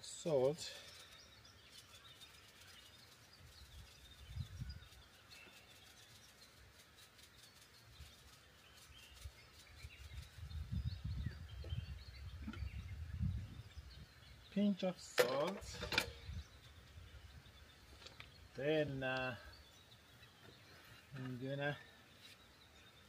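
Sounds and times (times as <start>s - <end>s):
birds chirping faintly: 0.0s - 23.0s.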